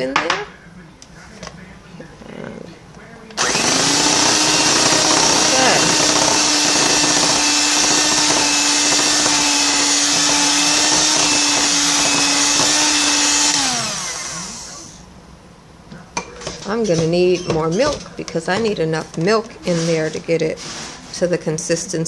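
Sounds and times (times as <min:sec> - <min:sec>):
electric hand mixer running: 0:03.4 - 0:15.0
mixer motor winding down: 0:03.4 - 0:15.0.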